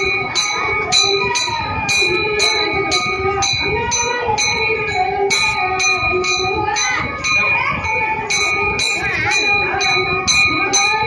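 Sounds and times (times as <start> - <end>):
hand bell ringing: 0.0 - 11.0.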